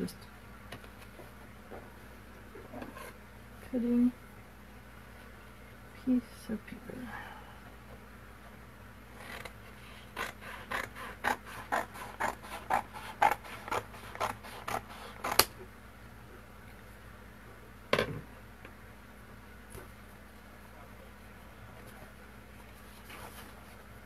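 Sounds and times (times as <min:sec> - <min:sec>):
scissors cutting paper: 0:10.2 - 0:15.5.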